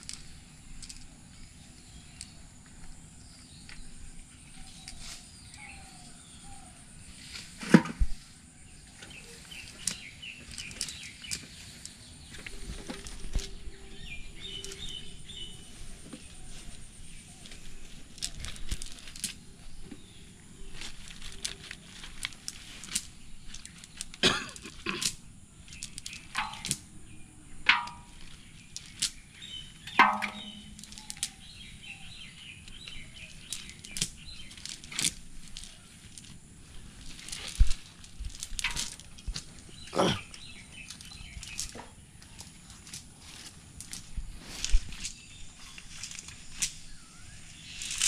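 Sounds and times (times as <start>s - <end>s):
birds chirping faintly: 0.0s - 48.0s
cast net rustling and clicking: 9.0s - 13.6s, 16.1s - 19.4s, 20.8s - 26.9s, 27.6s - 31.6s, 32.7s - 47.0s, 47.6s - 48.0s
sharp knocks: 26.4s - 26.8s, 29.9s - 31.0s.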